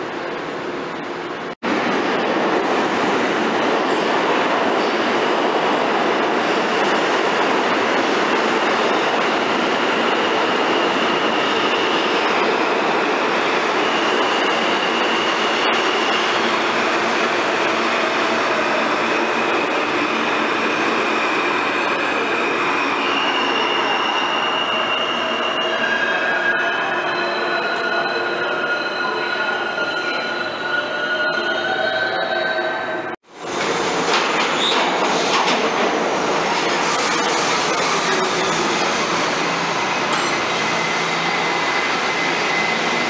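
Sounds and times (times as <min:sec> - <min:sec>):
subway train wheel and rail noise: 0:00.0 - 0:43.0
steel wheels squealing: 0:19.2 - 0:32.8, 0:40.0 - 0:43.0.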